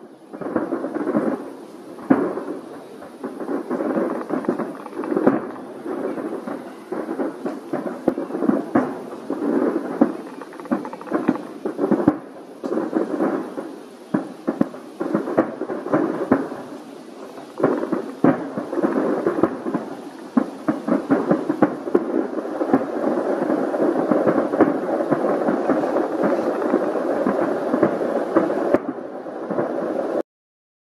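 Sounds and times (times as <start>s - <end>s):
fireworks bangs: 0.0s - 30.2s
fireworks crackling: 0.0s - 30.2s.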